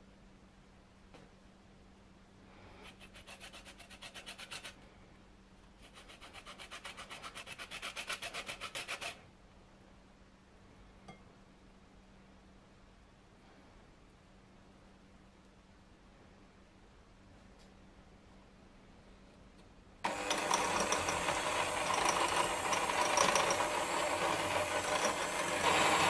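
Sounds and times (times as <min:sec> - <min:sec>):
lemon grated on metal grater: 0:02.8 - 0:04.8, 0:05.8 - 0:09.2, 0:20.1 - 0:26.0.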